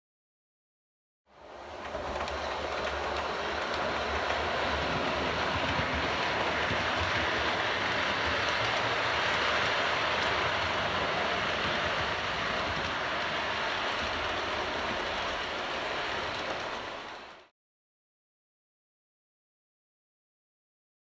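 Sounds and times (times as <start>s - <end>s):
model train wheels rumbling on rail: 1.3s - 17.5s.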